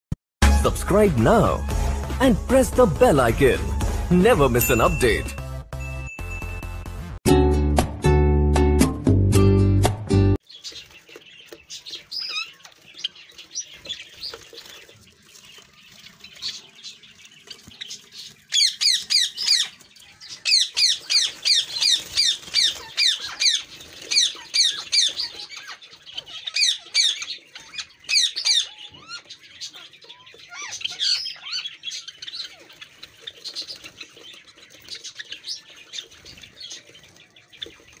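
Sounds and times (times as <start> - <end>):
parrots squawking: 18.4 - 36.8.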